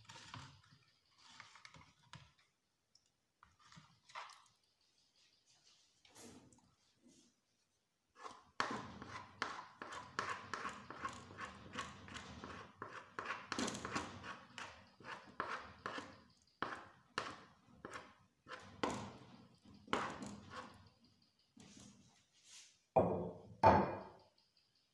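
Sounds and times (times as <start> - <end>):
wooden stick knocking on metal pot: 23.0 - 24.2.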